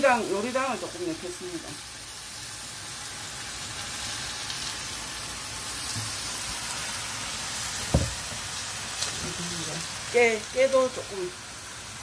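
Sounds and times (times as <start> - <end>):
food sizzling in a frying pan: 0.0 - 12.0
thump: 7.9 - 8.2.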